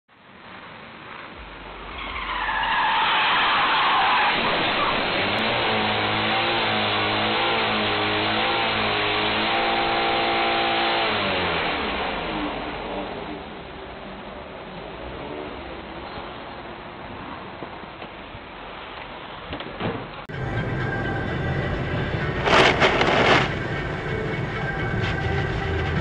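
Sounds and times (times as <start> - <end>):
tires squealing and skidding: 1.1 - 12.4
car engine revving hard: 4.3 - 13.6.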